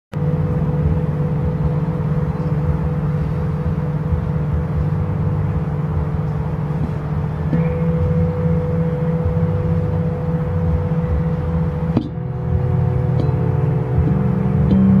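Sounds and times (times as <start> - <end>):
low rumble: 0.1 - 15.0
singing bowls ringing: 6.8 - 15.0.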